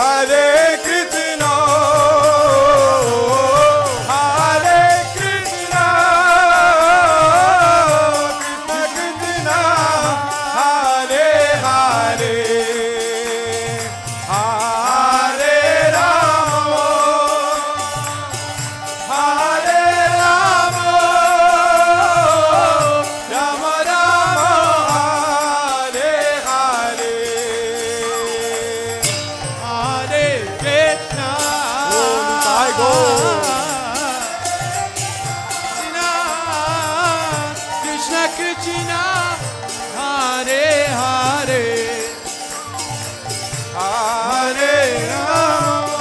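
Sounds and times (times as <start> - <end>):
small hand cymbals: 0.0 - 46.0
wavering melody with held notes: 27.9 - 45.7
drum rhythm: 29.0 - 39.4.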